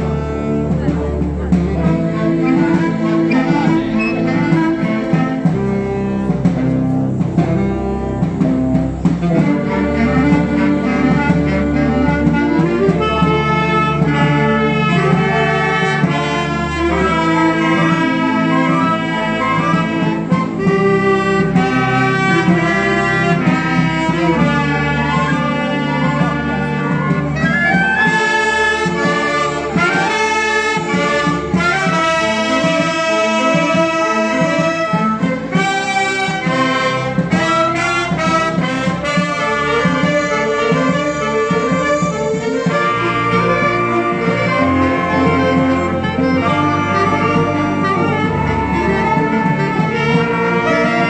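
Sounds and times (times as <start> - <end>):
wind band playing: 0.0 - 51.0.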